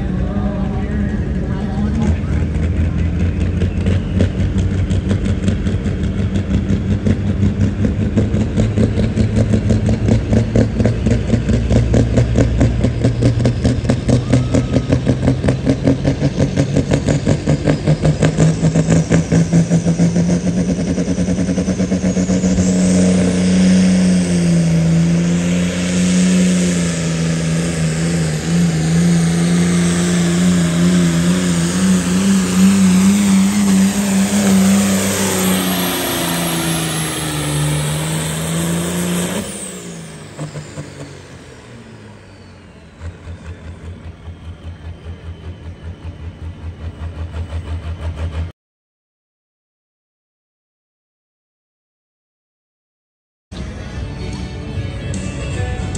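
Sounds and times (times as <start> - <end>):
tractor diesel engine revving: 0.0 - 48.5
turbo whine: 9.9 - 48.5.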